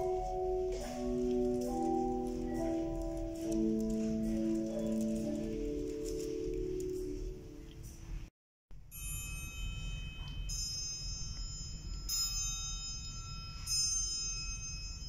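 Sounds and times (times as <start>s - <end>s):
bells ringing single notes: 8.9s - 15.0s.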